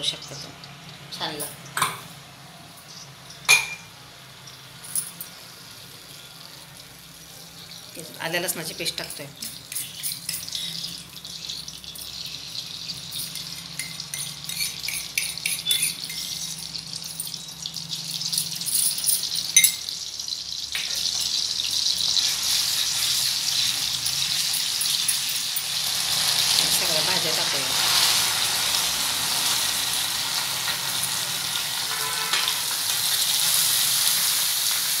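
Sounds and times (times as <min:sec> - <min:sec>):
hot oil sizzling: 0:00.0 - 0:35.0
spatula scraping on pan: 0:13.8 - 0:16.6.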